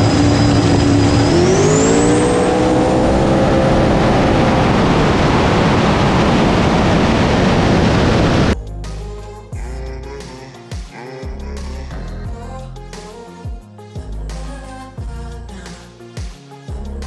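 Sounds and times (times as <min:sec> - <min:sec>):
drag car engine at full throttle: 0:00.0 - 0:08.6
loud rushing noise: 0:00.0 - 0:08.6
high whine: 0:00.0 - 0:10.4.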